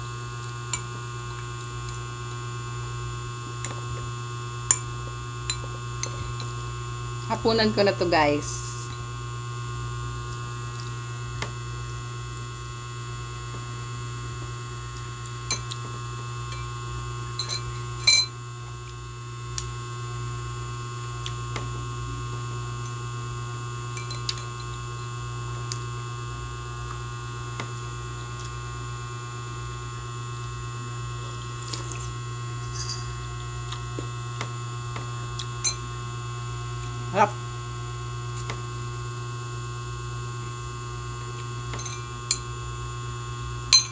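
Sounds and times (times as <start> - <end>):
steady electrical hum: 0.0 - 43.9.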